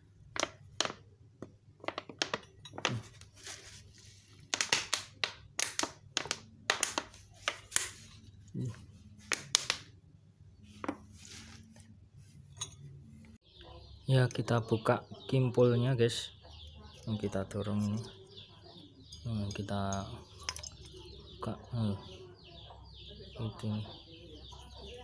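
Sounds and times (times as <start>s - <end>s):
rustling noises: 2.7s - 4.7s, 10.6s - 13.4s
metal part clicking and knocking: 19.4s - 21.0s.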